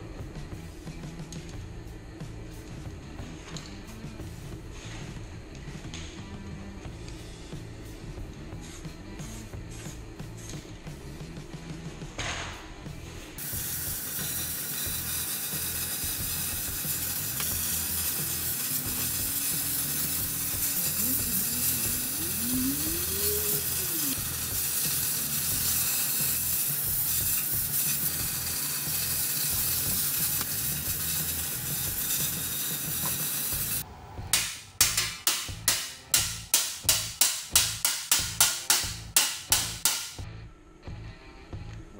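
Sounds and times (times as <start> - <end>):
cutting torch hissing: 13.4 - 33.8.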